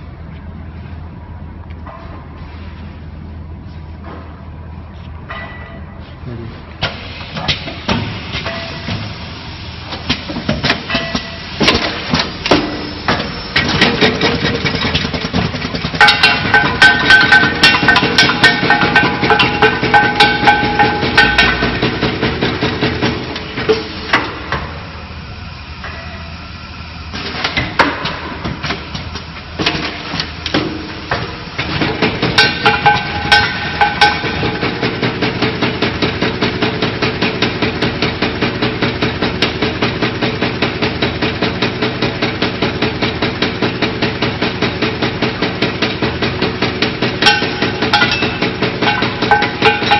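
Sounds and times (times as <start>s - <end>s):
machine clattering: 10.6s - 24.3s, 31.6s - 49.9s
steady machine tone: 16.0s - 27.5s, 30.8s - 35.3s, 47.2s - 49.9s.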